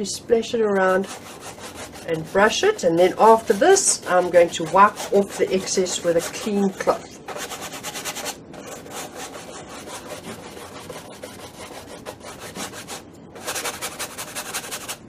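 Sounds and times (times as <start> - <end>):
brush scrubbing on canvas: 0.8 - 15.0.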